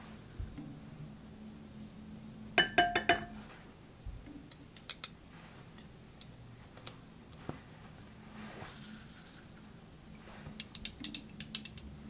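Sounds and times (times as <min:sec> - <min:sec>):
glass bowl clinking: 0:02.6 - 0:03.4.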